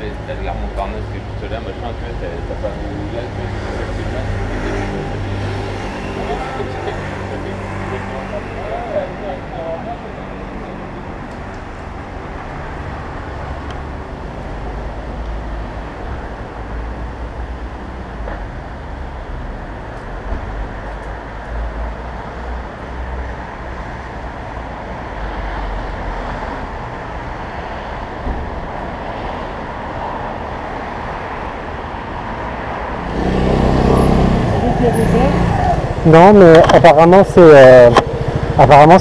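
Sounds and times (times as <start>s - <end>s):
street traffic noise: 0.0s - 39.0s
motorcycle engine running: 37.8s - 39.0s.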